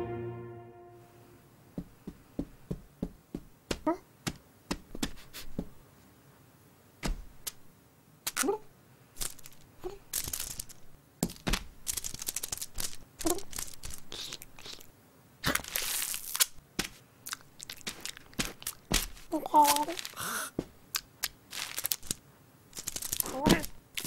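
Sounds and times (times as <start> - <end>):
tape crinkling: 9.2 - 24.0
sticky tape ripping: 11.4 - 14.8, 15.4 - 17.0, 22.8 - 24.0.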